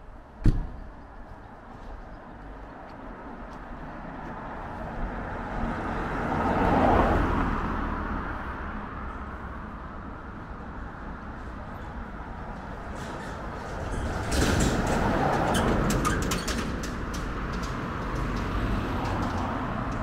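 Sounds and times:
car passing: 0:03.2 - 0:14.2, 0:16.8 - 0:20.0.

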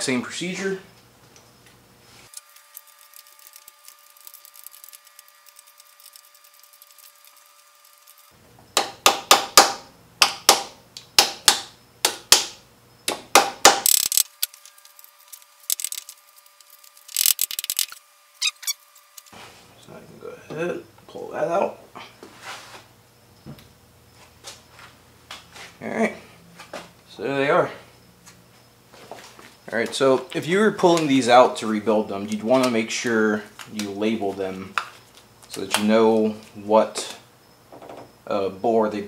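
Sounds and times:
hand ratchet clicking: 0:13.7 - 0:18.7.

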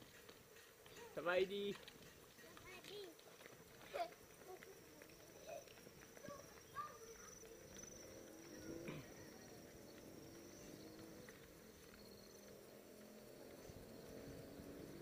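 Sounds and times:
faint chirps: 0:04.4 - 0:15.0.

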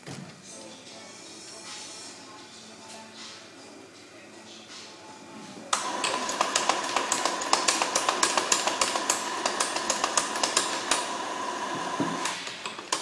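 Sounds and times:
espresso machine pump humming: 0:05.8 - 0:13.0.

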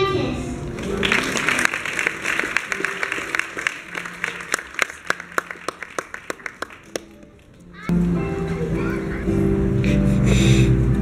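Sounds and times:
audience applauding: 0:00.7 - 0:07.5.

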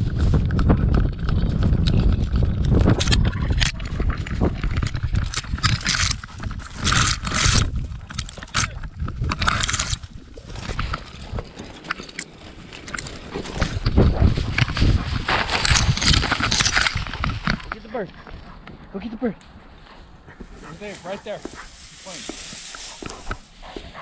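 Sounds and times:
heavy rumble of camera mount: 0:00.0 - 0:18.8
grass and brush scraping camera: 0:00.0 - 0:24.0.

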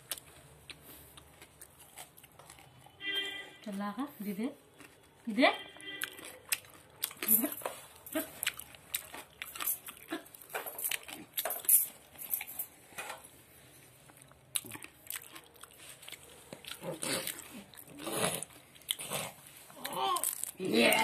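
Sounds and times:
baby babbling: 0:19.8 - 0:20.3.

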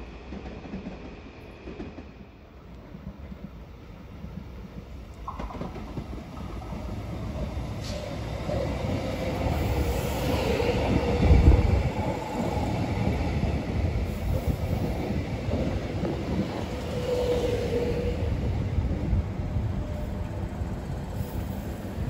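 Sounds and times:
electric train rumbling: 0:00.0 - 0:22.0
train whine: 0:00.0 - 0:22.0.

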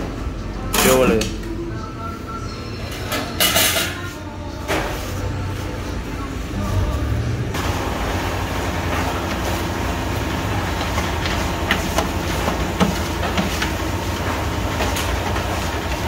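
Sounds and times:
electric grinding mill running: 0:07.6 - 0:16.0.

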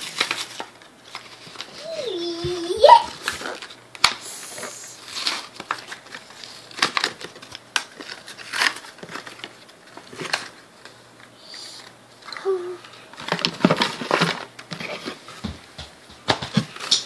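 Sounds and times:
blister pack crinkling and crackling: 0:00.0 - 0:11.4.

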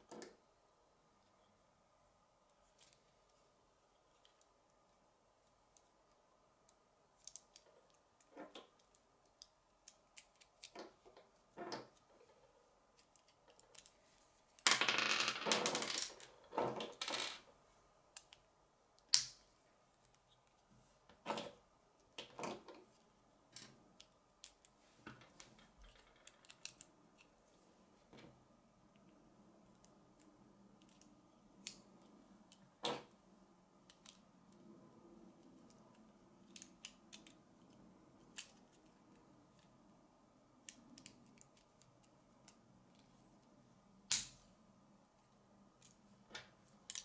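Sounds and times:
plastic pieces clicking together: 0:25.8 - 0:26.9.

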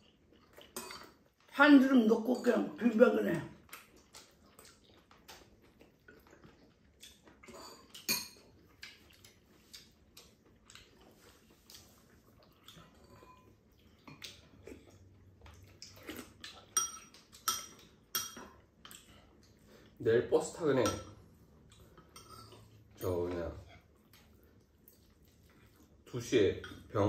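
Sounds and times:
spoons clinking on ceramic bowls: 0:16.7 - 0:18.6, 0:20.7 - 0:21.2.

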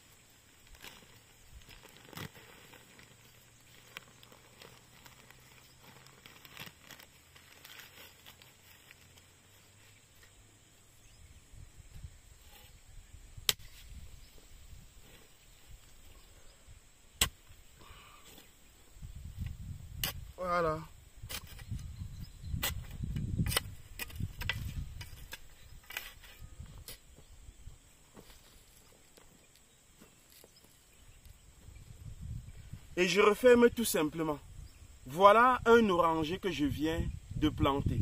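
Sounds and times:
soil scraping: 0:00.0 - 0:10.4, 0:11.9 - 0:16.6, 0:17.2 - 0:27.3, 0:28.0 - 0:31.4
plastic bag rustling: 0:00.6 - 0:09.2.

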